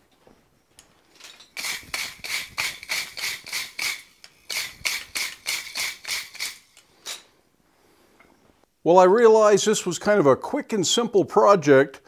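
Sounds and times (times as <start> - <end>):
wire brush scrubbing steel: 1.6 - 7.2.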